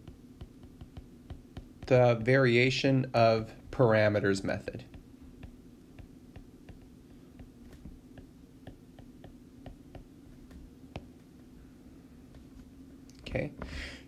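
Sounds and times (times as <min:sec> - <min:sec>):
stylus tapping on tablet screen: 0:00.0 - 0:02.4, 0:04.8 - 0:11.2
low steady hum: 0:00.0 - 0:14.0.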